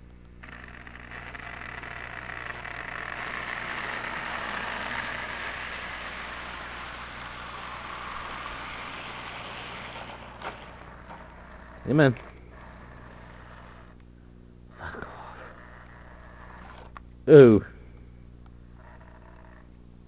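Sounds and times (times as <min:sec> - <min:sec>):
model train motors whirring: 0:00.0 - 0:14.0, 0:14.7 - 0:17.5, 0:18.8 - 0:19.7
wheels rolling on rails: 0:00.0 - 0:14.0, 0:15.0 - 0:17.0.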